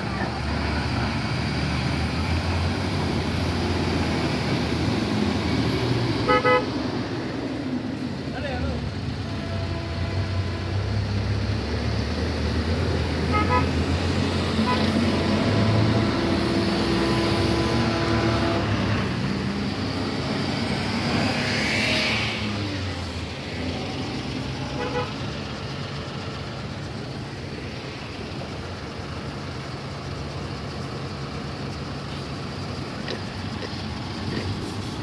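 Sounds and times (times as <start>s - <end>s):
diesel trucks running slowly: 0.0s - 35.0s
vehicles passing: 0.0s - 35.0s
vehicle horn: 6.2s - 6.7s, 9.2s - 10.9s, 13.2s - 13.8s, 14.6s - 18.8s, 24.7s - 25.2s.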